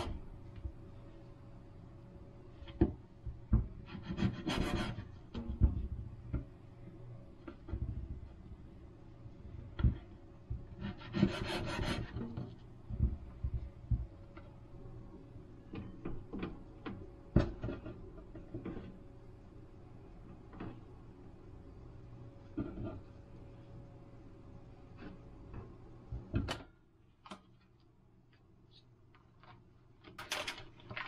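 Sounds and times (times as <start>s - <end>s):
knife scraping rasp: 3.8s - 5.1s, 10.7s - 12.4s
handling noises: 27.2s - 31.0s.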